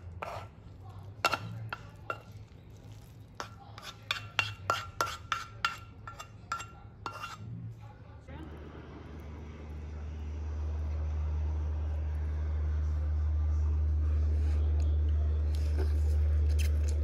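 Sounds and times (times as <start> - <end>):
wooden utensils clacking on ceramic dish: 3.4 - 7.3.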